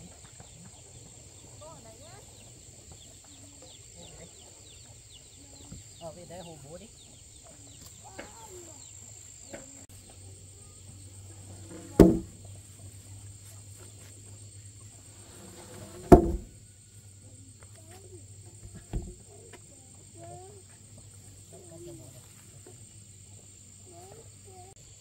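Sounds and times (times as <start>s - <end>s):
insects buzzing: 0.0s - 25.0s
wooden beams thudding: 11.6s - 12.5s, 15.5s - 16.6s
light wooden knock: 11.7s - 12.3s.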